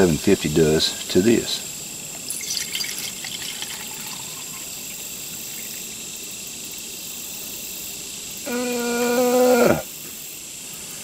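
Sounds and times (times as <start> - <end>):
insects chirping: 0.0 - 11.0
water pouring into a metal mug: 2.2 - 6.0.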